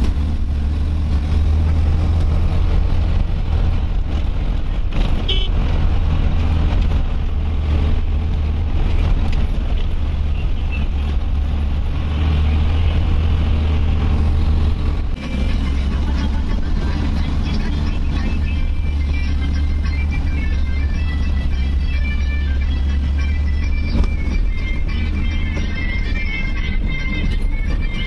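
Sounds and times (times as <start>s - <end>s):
vehicle engine and road rumble: 0.0s - 28.0s.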